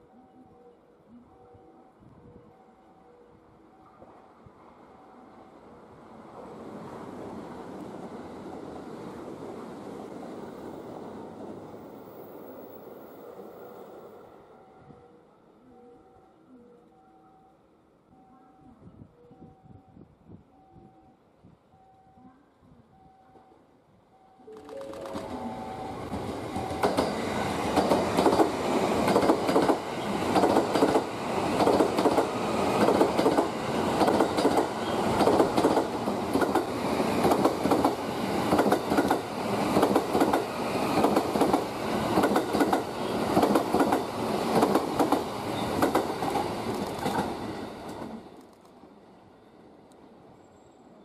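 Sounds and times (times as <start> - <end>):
train wheels clattering over rails: 26.2 - 48.1.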